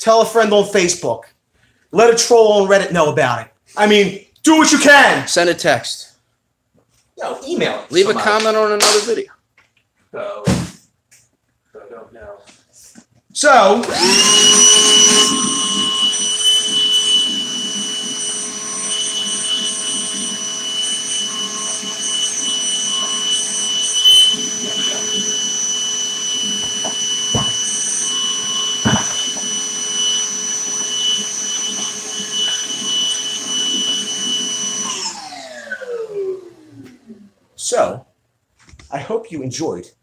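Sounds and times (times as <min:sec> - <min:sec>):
shop vacuum whining: 0:13.4 - 0:37.4.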